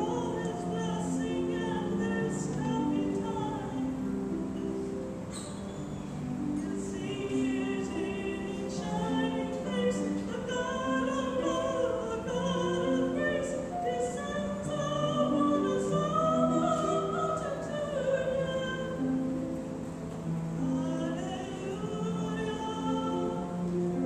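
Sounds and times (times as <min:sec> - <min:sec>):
slow classical accompaniment: 0:00.0 - 0:24.0
person singing: 0:06.6 - 0:19.2.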